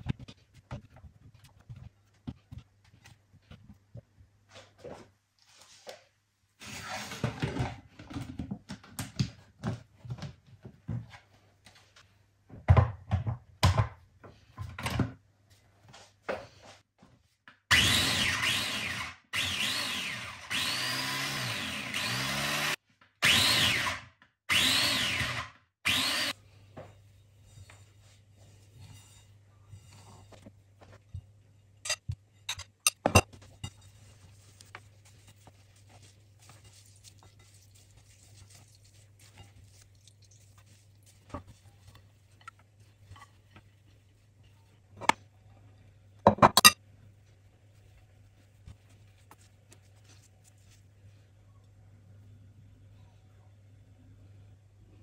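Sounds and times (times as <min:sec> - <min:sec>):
kitchen knocks and clatter: 0:12.5 - 0:15.2, 0:31.9 - 0:33.9, 0:46.2 - 0:46.8
electric food chopper motor: 0:17.7 - 0:26.3.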